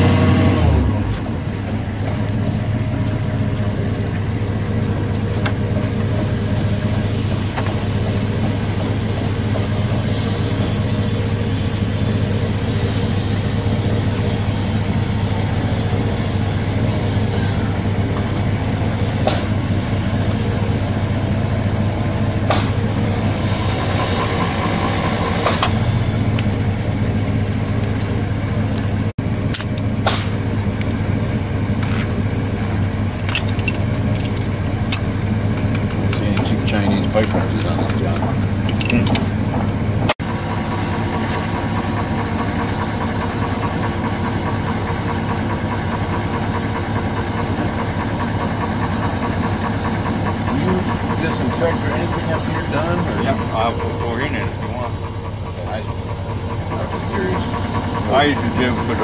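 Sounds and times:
engine idling: 0.0 - 59.0
tools clicking on pipe: 33.2 - 35.0, 37.2 - 39.2.

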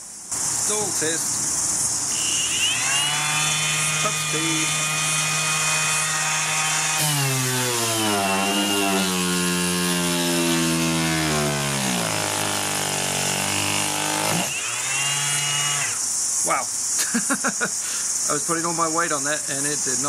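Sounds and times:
random orbit sander running: 2.1 - 16.1.

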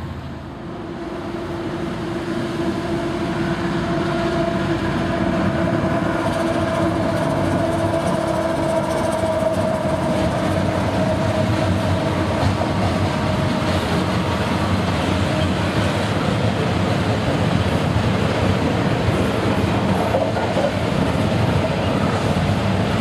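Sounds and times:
locomotive tone: 0.0 - 16.7
freight cars rumbling on rails: 0.0 - 23.0.

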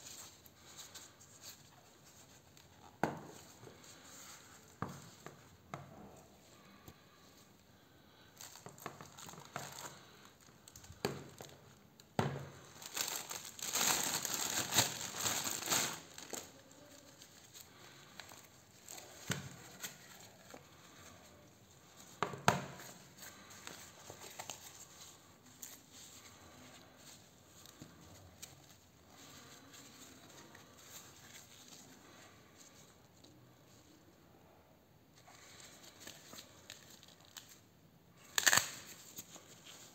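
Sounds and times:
plastic packaging crinkling: 12.6 - 21.0, 38.2 - 39.9.

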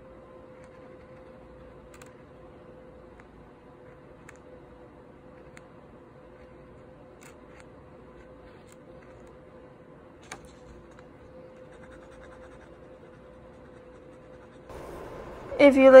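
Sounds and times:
faint steady hum: 0.0 - 16.0
pen scratching on paper: 6.3 - 9.3, 10.6 - 14.7.

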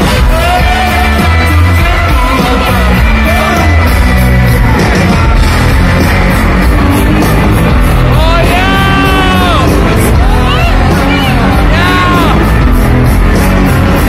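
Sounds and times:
man singing: 0.0 - 4.1, 8.0 - 12.6
bass and drums: 0.0 - 14.0
electric guitars: 0.0 - 14.0.

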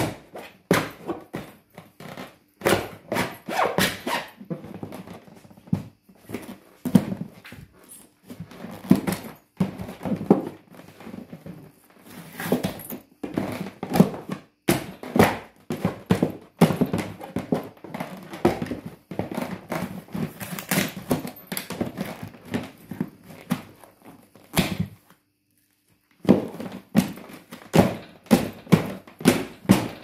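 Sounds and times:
heels knocking on plastic: 0.0 - 25.2, 26.2 - 30.0
plastic suitcase cracking: 12.4 - 23.8, 24.4 - 25.0, 26.2 - 30.0.

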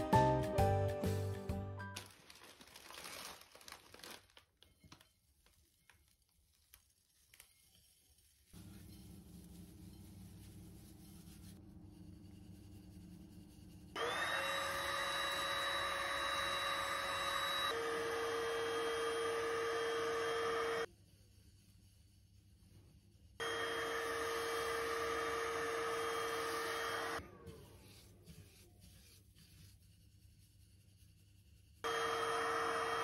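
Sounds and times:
vacuum cleaner motor whine: 14.0 - 20.9, 23.4 - 27.2, 31.8 - 33.0.

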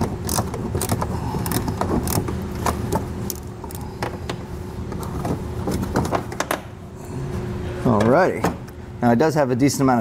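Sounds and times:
hand ratchet clicking: 0.0 - 2.2
faint steady hum: 0.0 - 10.0.

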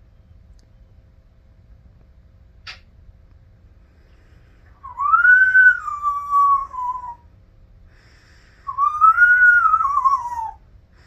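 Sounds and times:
parrot whistling long notes: 4.8 - 7.2, 8.7 - 10.6.

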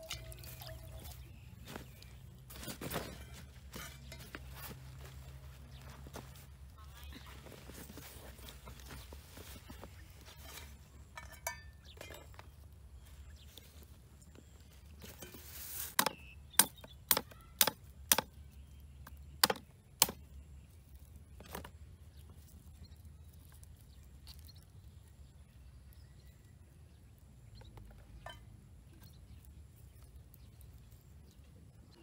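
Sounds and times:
faint handling sounds: 0.0 - 16.0.

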